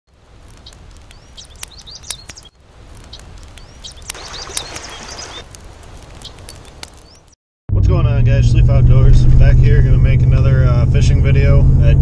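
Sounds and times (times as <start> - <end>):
small birds chirping: 0.4 - 5.5, 6.2 - 7.4
creek water rushing: 4.0 - 5.4.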